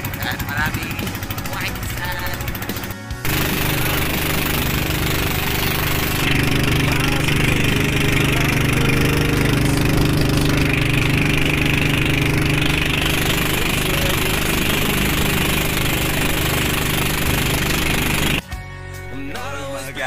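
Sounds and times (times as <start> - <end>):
motorboat engine running: 0.0 - 18.4.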